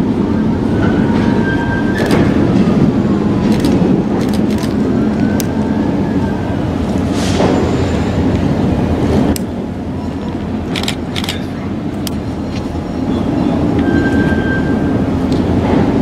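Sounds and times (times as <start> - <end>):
diesel locomotive engine rumbling: 0.0 - 16.0
high squeal: 0.8 - 2.3, 13.4 - 15.1
sharp clicks and clanks: 10.7 - 12.2.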